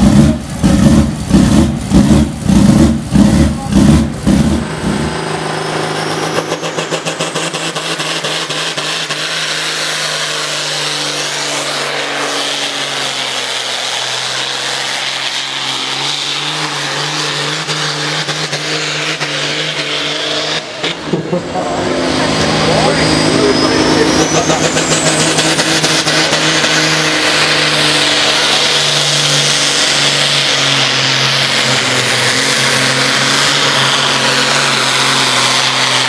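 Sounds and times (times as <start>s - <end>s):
diesel tractor engine revving: 0.0s - 36.0s.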